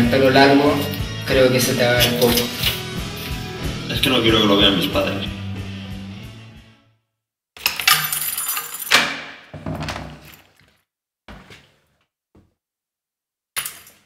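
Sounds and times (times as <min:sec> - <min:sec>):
keys rattling: 0:07.6 - 0:09.0.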